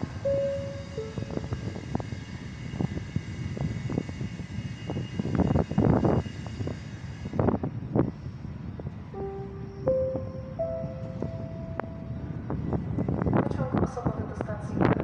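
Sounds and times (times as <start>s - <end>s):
mechanical drone with whine: 0.0s - 6.6s.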